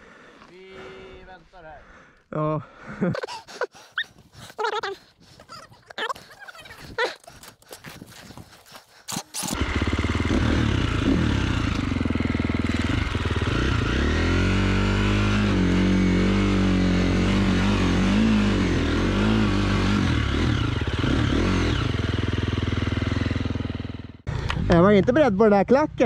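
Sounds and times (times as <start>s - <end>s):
motorcycle engine revving: 9.1s - 24.9s.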